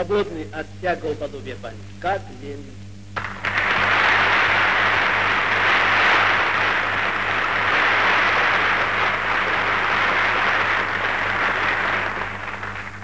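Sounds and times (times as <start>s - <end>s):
steady low hum: 0.0s - 13.0s
large audience applause: 3.2s - 13.0s.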